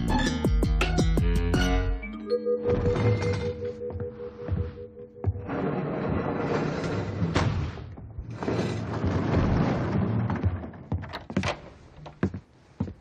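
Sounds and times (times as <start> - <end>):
music: 0.0 - 5.5
door opening clicks and knocks: 9.0 - 12.2.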